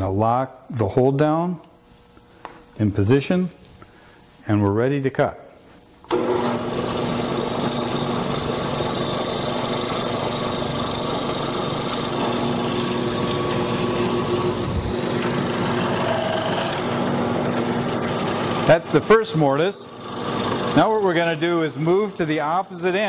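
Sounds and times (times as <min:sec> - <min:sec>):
drill press motor running: 0:06.1 - 0:23.0.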